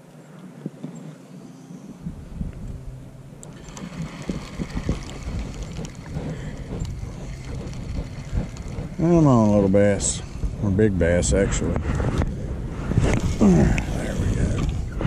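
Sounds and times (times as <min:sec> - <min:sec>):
wind rumbling on microphone: 0:01.8 - 0:15.0
water lapping against kayak hull: 0:03.6 - 0:10.6.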